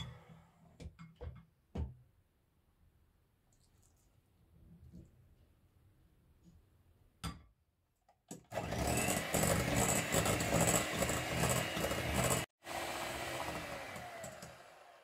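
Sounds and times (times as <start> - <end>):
electric hand mixer whisking batter: 8.5 - 15.0.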